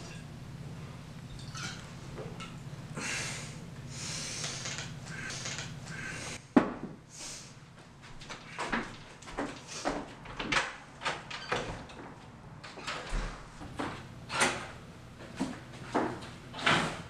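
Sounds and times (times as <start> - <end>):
man gasping and exhaling: 3.0 - 6.4.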